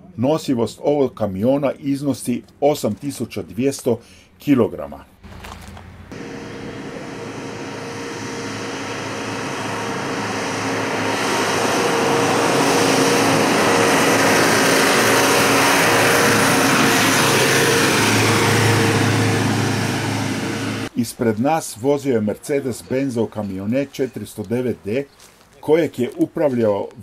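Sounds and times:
tyre noise: 5.2s - 6.1s
van engine driving past: 5.2s - 20.9s.

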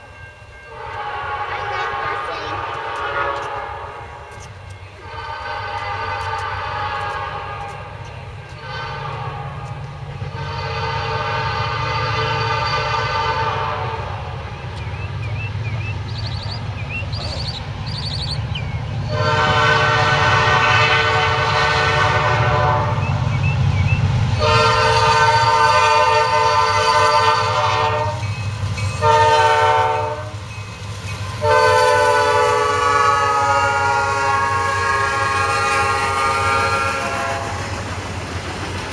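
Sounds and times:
locomotive air horn blasts: 0.7s - 4.2s, 5.0s - 14.3s, 19.1s - 23.2s, 24.4s - 28.3s, 29.0s - 30.4s, 31.4s - 37.7s
diesel engines rumbling: 1.3s - 38.9s.

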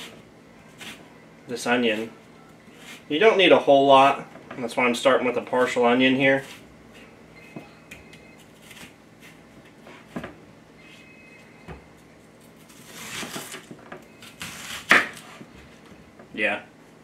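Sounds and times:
knife cutting onion on board: 0.8s - 1.0s, 14.3s - 15.4s.

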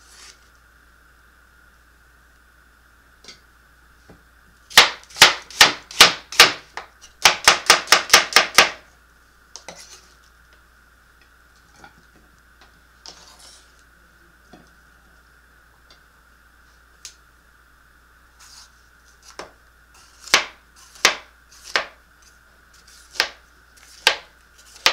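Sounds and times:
knife chopping on plastic board: 4.7s - 8.8s, 20.2s - 22.0s, 23.1s - 24.9s.

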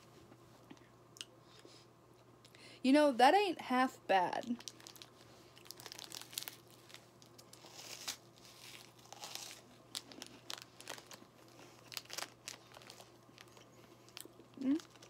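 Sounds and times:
plastic wrapper crinkling: 4.4s - 15.0s
snack crunching: 4.6s - 15.0s.

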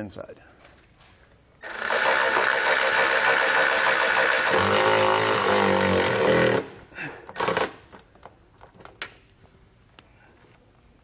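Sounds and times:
cordless driver running: 1.6s - 6.8s, 7.4s - 7.8s.

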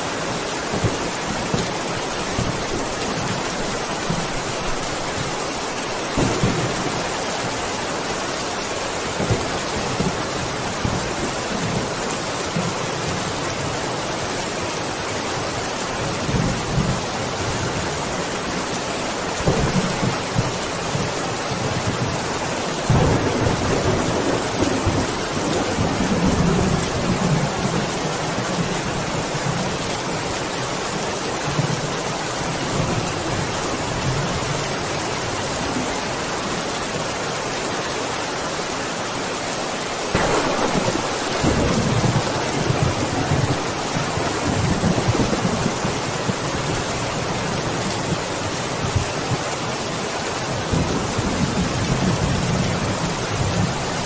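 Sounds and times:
heavy rain: 0.0s - 54.0s
thunder rumbling: 0.6s - 8.2s, 22.8s - 29.8s, 40.1s - 48.2s.

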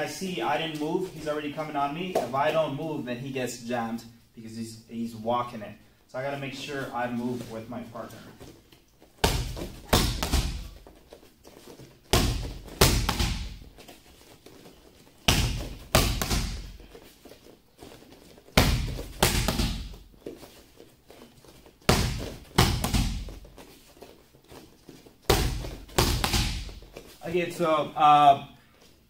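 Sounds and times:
boxing gloves hitting mitts: 9.2s - 10.9s, 11.8s - 13.9s, 15.2s - 17.1s, 18.5s - 20.4s, 21.8s - 23.6s, 25.2s - 27.1s.

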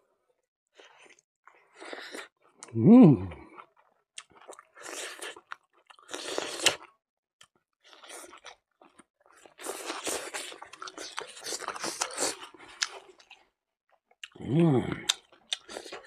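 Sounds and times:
wet chewing sounds: 3.4s - 16.0s.

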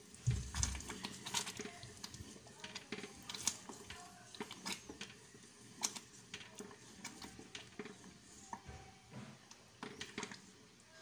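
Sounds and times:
spatula scraping a saucepan: 0.4s - 8.8s.

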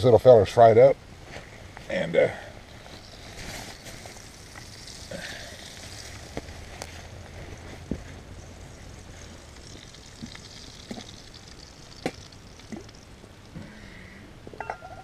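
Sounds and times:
hot grease hissing in frying pan: 2.1s - 13.1s.

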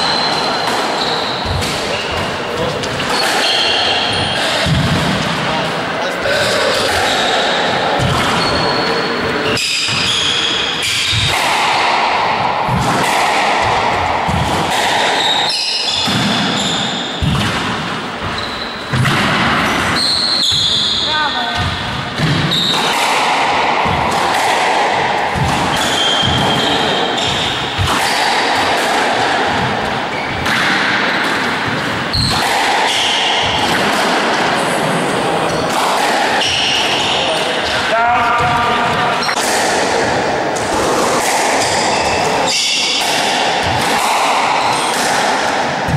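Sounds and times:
shoes squeaking on floor: 0.0s - 4.7s, 6.9s - 11.3s, 15.2s - 17.3s, 18.2s - 19.0s, 19.9s - 21.8s, 25.4s - 28.2s, 30.1s - 30.5s, 32.1s - 33.4s, 41.6s - 43.0s
squash ball thudding: 0.0s - 5.5s, 6.3s - 8.9s, 9.5s - 45.9s
background noise: 0.0s - 45.9s
shoes squeaking on wooden floor: 8.0s - 11.2s, 18.2s - 19.0s.

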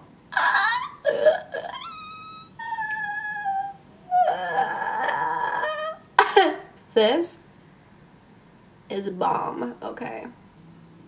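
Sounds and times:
woman squealing: 0.3s - 6.1s.

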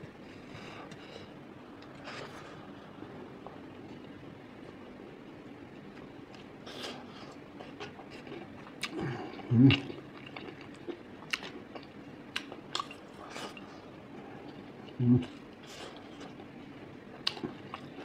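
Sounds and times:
person chewing food: 5.8s - 18.0s.

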